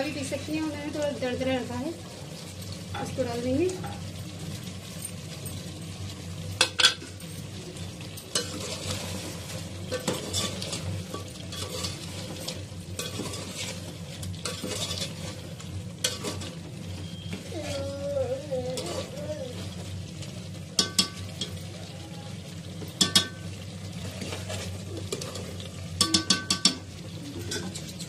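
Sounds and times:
curry sizzling: 0.0 - 28.0
spoon knocking against pot: 20.8 - 21.2, 23.0 - 23.4, 26.0 - 26.8.

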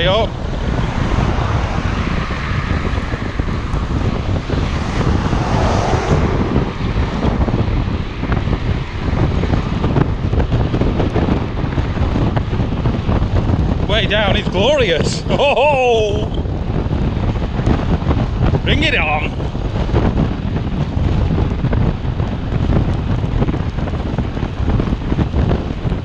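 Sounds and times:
tyre and road rumble: 0.0 - 26.0
wind buffeting microphone: 0.0 - 26.0
car passing close by: 0.3 - 8.0.

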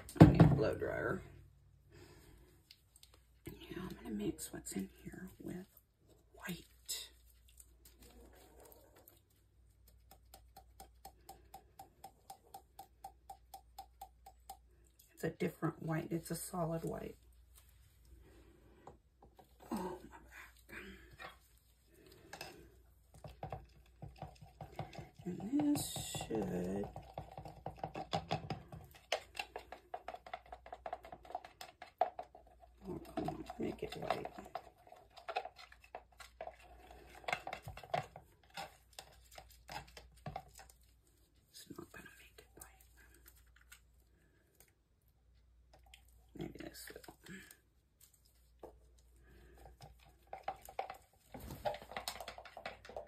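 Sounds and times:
stick stirring paint in plastic cup: 0.0 - 53.0
stick knocking against cup: 10.0 - 14.6.

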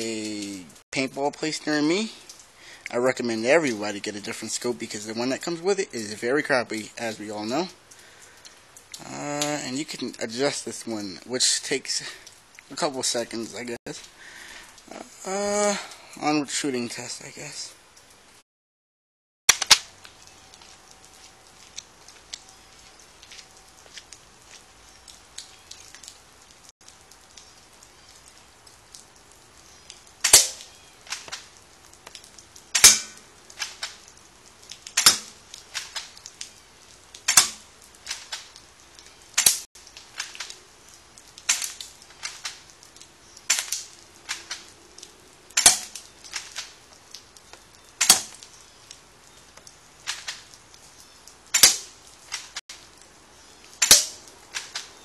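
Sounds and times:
airsoft rifle sharp snaps: 48.0 - 48.4, 51.6 - 51.9, 53.8 - 54.9.

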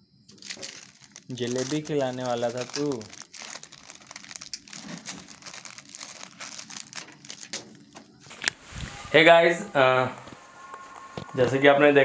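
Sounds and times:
wrapper crinkling: 0.3 - 8.6.

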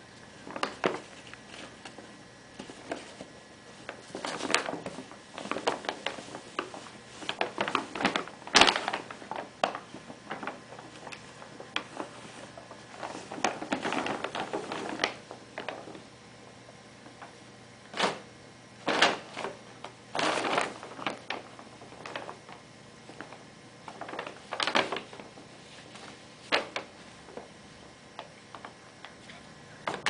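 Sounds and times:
paper bag crinkling: 0.4 - 16.0, 17.9 - 18.2, 18.8 - 30.0.

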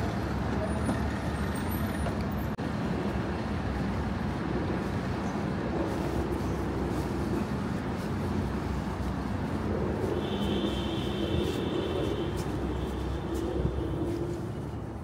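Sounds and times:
city traffic drone: 0.0 - 15.0.

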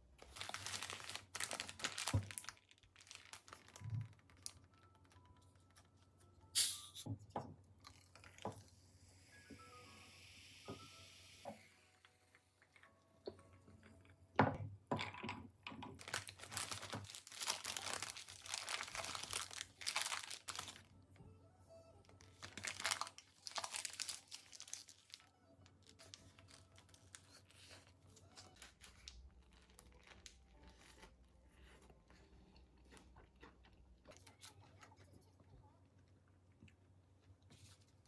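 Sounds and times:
paper wrapper crinkling: 0.2 - 6.0, 16.0 - 20.9, 22.0 - 31.2.

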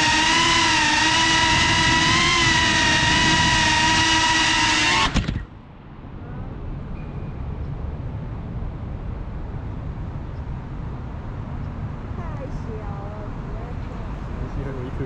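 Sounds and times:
drone motors whining: 0.0 - 5.6
faint outdoor background noise: 0.0 - 15.0.

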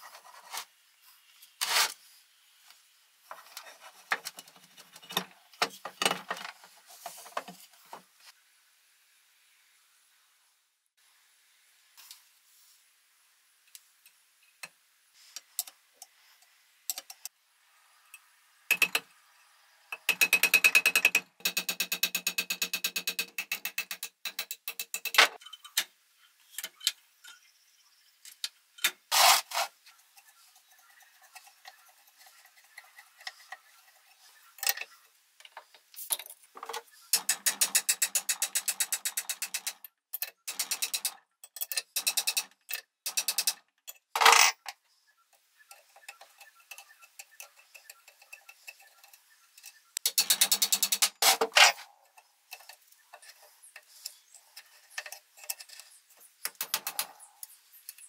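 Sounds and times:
rapid metallic clicks: 19.9 - 25.4, 37.1 - 44.0, 46.0 - 51.8.

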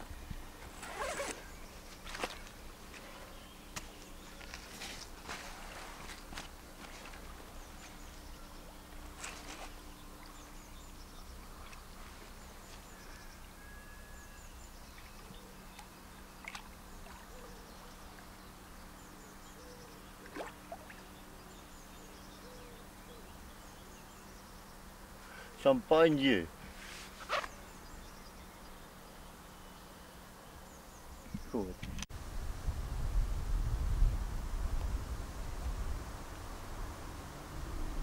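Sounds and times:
faint birds chirping: 0.0 - 32.0
sling rustling: 0.6 - 8.2, 8.9 - 9.9, 26.7 - 27.6
soft water splashes: 15.0 - 18.4, 20.2 - 21.2.

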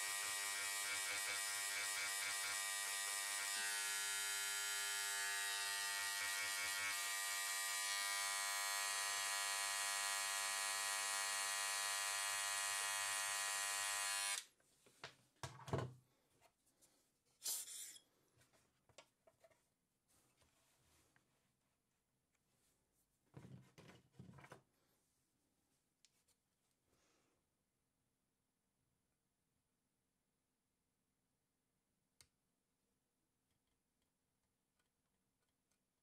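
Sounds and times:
vibrating needle scribe buzzing: 0.0 - 14.4.

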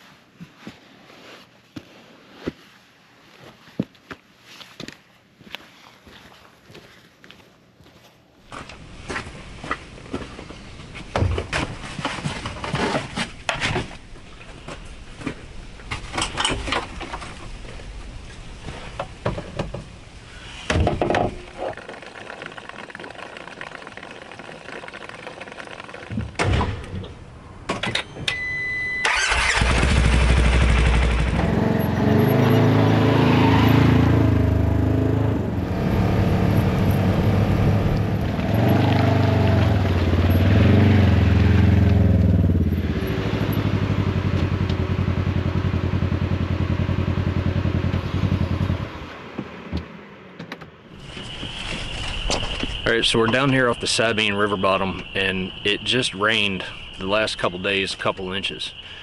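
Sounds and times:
vehicle engine revving: 29.2 - 49.1.

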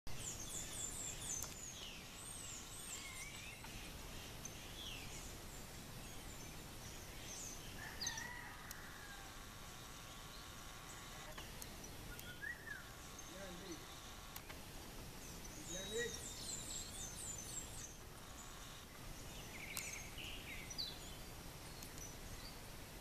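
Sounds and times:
lower bird call: 0.1 - 14.6
birds chirping and whistling: 0.1 - 22.6.

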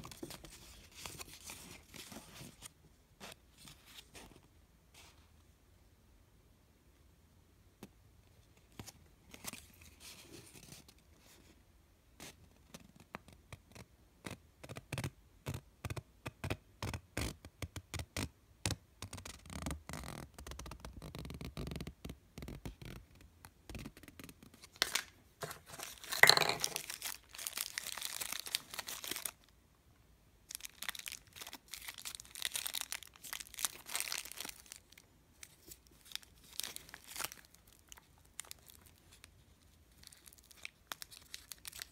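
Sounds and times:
paper and plastic bag crinkling: 25.6 - 29.4, 30.5 - 39.2, 39.9 - 41.9.

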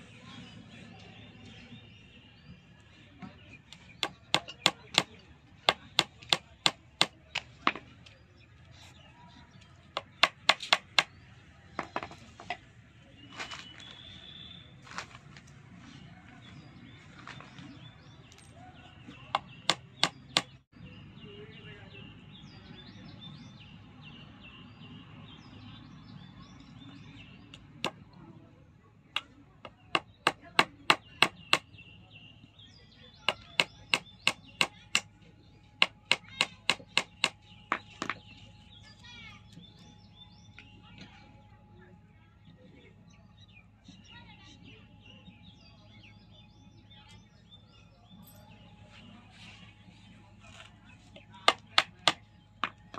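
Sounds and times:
hammer striking nails: 4.0 - 7.8, 10.0 - 11.1, 19.4 - 20.6, 29.2 - 31.7, 33.3 - 35.1, 35.8 - 38.2, 51.4 - 52.8.

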